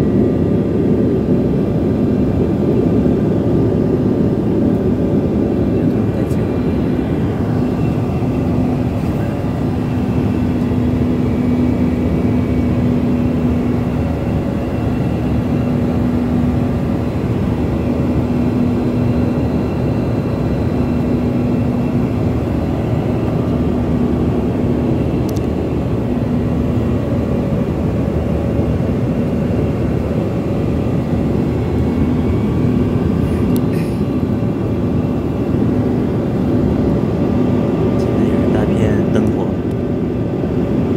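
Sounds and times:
rushing air in cabin: 0:00.0 - 0:19.4, 0:20.1 - 0:38.6
airliner engines droning: 0:00.0 - 0:40.9
constant low hum: 0:00.0 - 0:40.9.

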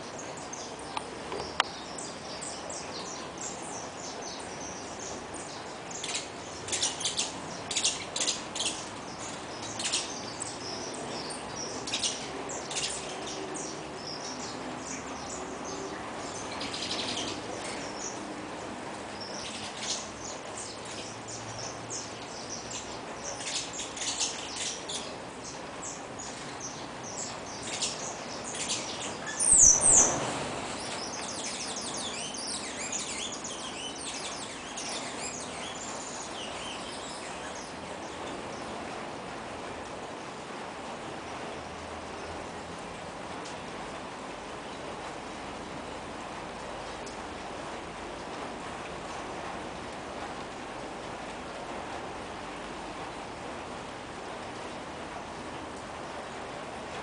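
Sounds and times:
finches chirping: 0:00.0 - 0:18.2, 0:19.1 - 0:38.7
steady background noise: 0:00.0 - 0:57.0.

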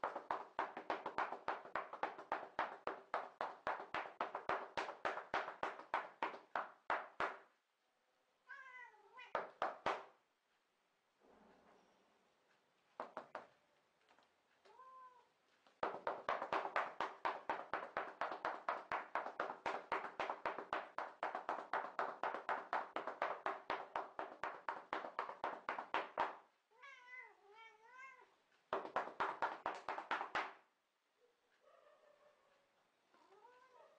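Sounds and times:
cat meowing: 0:08.4 - 0:09.4, 0:14.7 - 0:15.3, 0:26.7 - 0:28.4, 0:33.2 - 0:33.9.

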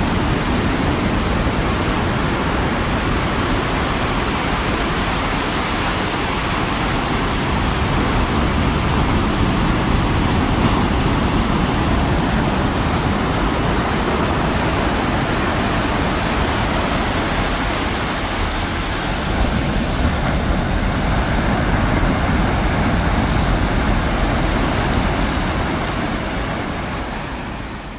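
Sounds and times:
ocean waves breaking: 0:00.0 - 0:27.9.

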